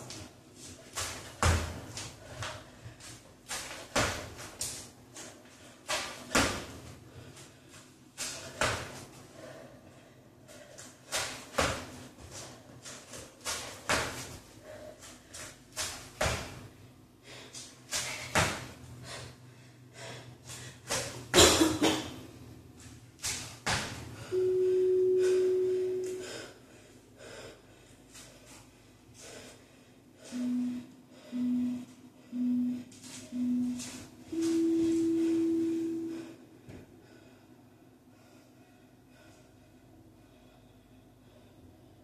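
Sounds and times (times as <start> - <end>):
electronic timer beeps: 24.3 - 26.2, 30.4 - 36.1.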